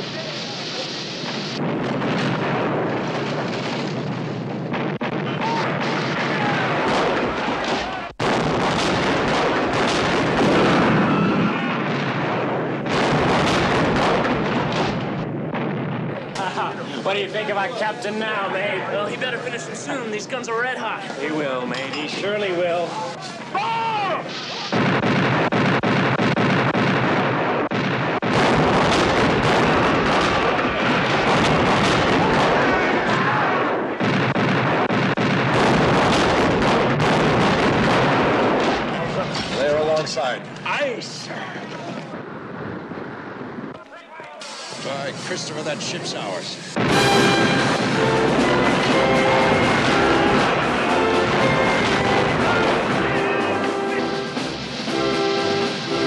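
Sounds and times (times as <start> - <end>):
sharp bangs: 0.0 - 19.6, 20.2 - 40.9, 41.7 - 56.0
cannon fire booms: 1.1 - 16.8, 24.3 - 40.0, 46.7 - 56.0.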